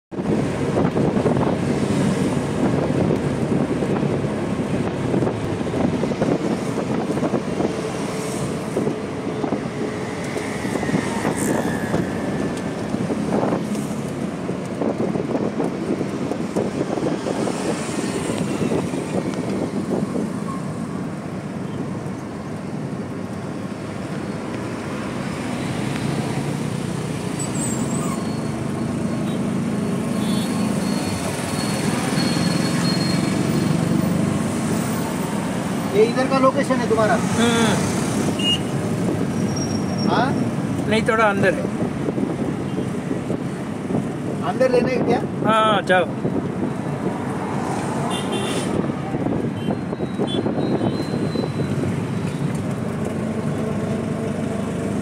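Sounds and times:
road and traffic noise: 0.1s - 55.0s
auto-rickshaw engine running: 51.2s - 55.0s.

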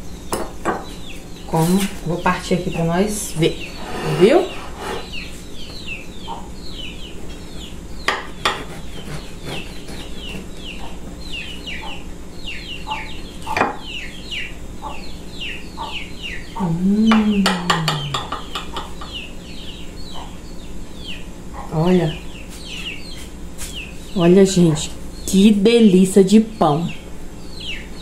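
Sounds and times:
chickens peeping and clucking: 0.0s - 8.0s, 10.6s - 25.2s.

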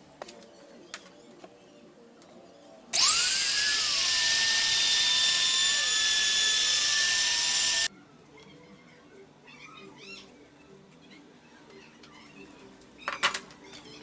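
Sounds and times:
router motor whine: 3.0s - 7.9s.

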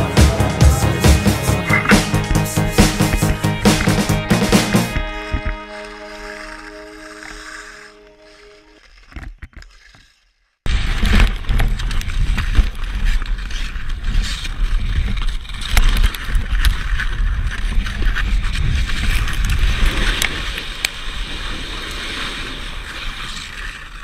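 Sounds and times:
background music: 0.0s - 8.7s
skate blades scraping on ice: 1.7s - 24.0s.

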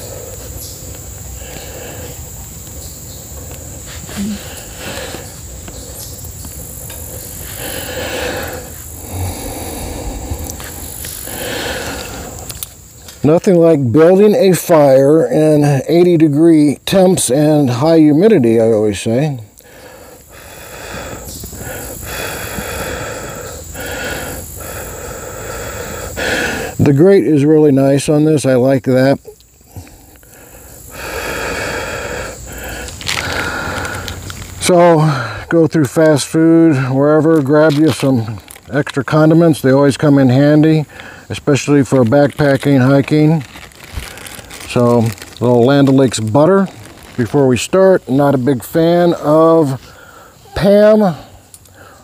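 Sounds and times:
insect drone: 0.0s - 52.0s
person blowing on fire: 3.5s - 5.6s, 6.7s - 12.7s
dry sticks rustling: 32.6s - 34.6s, 41.7s - 48.4s.

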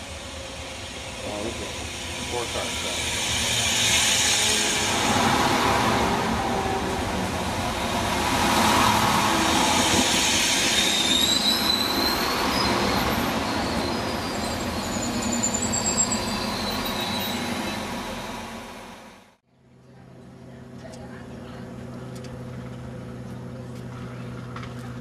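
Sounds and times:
train engine and wheels running: 0.0s - 25.0s
wheels squealing: 7.7s - 18.6s.

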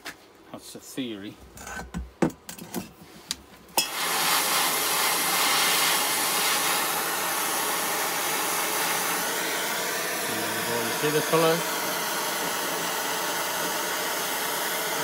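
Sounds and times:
torch flame hissing: 3.8s - 15.0s.

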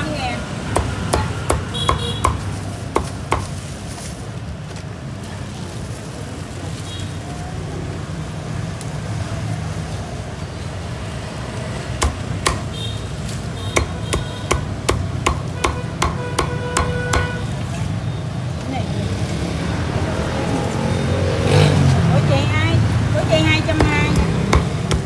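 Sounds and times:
cleaver chopping on wooden block: 0.7s - 3.5s, 12.0s - 12.7s, 13.8s - 17.4s, 23.7s - 25.0s.

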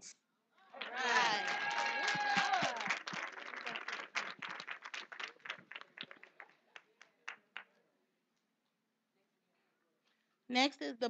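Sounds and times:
audience applause: 0.8s - 7.6s.

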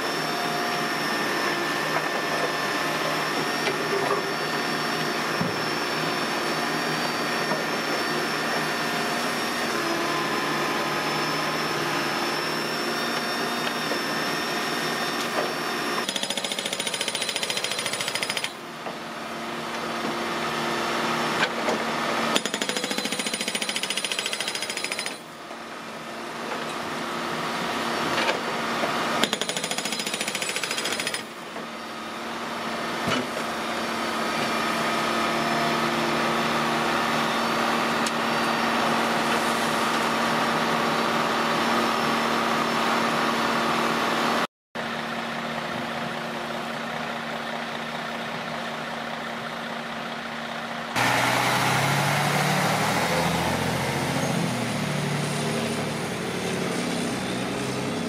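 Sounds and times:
hydraulic breaker hammering asphalt: 15.2s - 18.6s, 22.2s - 25.4s, 29.1s - 31.5s
diesel engine running: 31.3s - 58.0s
truck pulling away: 46.9s - 58.0s.

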